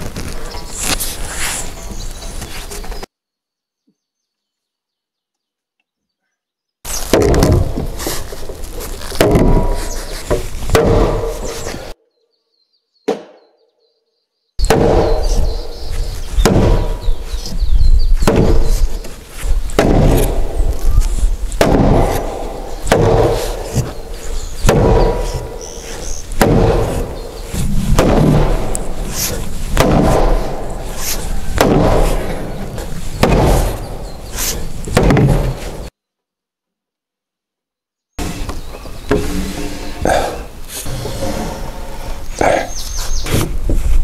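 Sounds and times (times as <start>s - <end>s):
mallet pounding timber beams: 7.0s - 11.9s, 14.6s - 17.6s, 18.2s - 19.1s, 19.7s - 20.8s, 21.5s - 35.9s.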